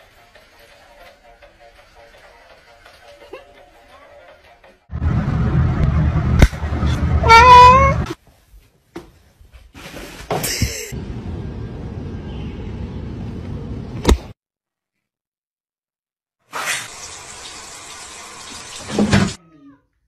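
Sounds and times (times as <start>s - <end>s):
low rumbling: 4.9s - 8.1s
cat meowing: 7.2s - 8.1s.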